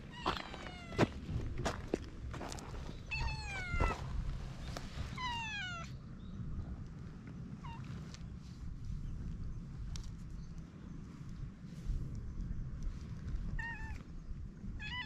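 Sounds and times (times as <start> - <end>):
cat meowing: 3.1 - 4.0, 13.5 - 14.0, 14.8 - 15.0.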